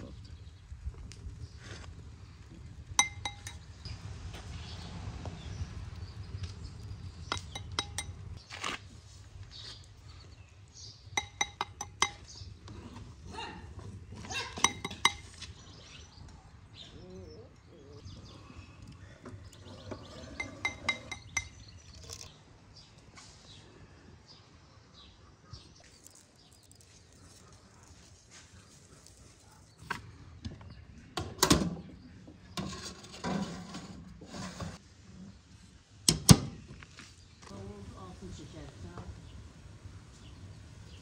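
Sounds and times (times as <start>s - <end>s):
utensils clinking against a bowl: 3.0s - 3.7s, 7.3s - 8.2s, 11.2s - 12.3s, 14.4s - 15.4s, 20.0s - 22.3s.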